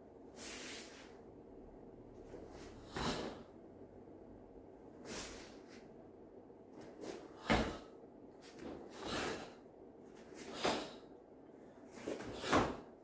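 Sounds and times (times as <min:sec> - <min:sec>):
bare feet on foam mat: 0:02.2 - 0:03.5, 0:06.8 - 0:11.0, 0:11.8 - 0:13.0.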